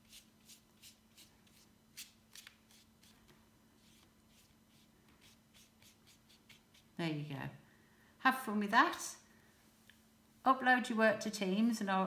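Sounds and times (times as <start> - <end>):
paintbrush swishing on paper: 0.0 - 7.0.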